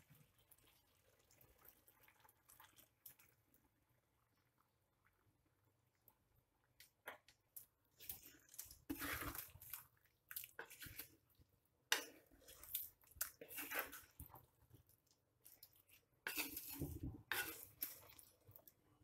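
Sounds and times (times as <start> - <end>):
spoon stirring thick sauce: 6.8 - 19.0.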